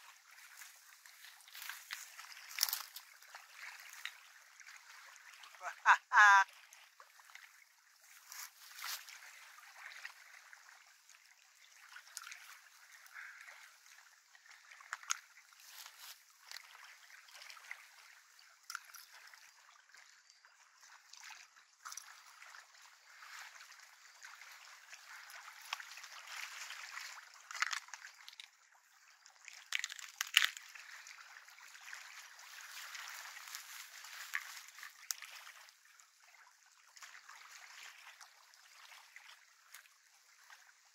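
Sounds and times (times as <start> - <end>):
small waves lapping: 0.0 - 40.9
fish handling clicks and rustles: 1.2 - 3.1, 27.4 - 28.5, 29.5 - 30.7.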